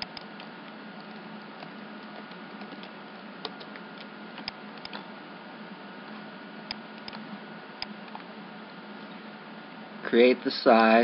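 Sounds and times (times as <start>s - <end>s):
computer mouse clicking: 0.0s - 5.0s, 6.7s - 7.2s
steady hiss with faint hum: 0.0s - 11.0s.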